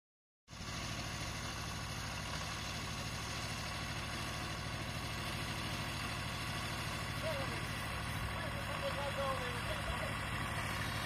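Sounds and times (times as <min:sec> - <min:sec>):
vehicle engine running: 0:00.5 - 0:11.0.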